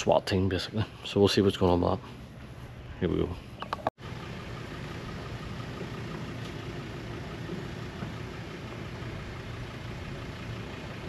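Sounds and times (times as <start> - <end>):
outdoor background rumble and hiss: 0.0 - 11.0.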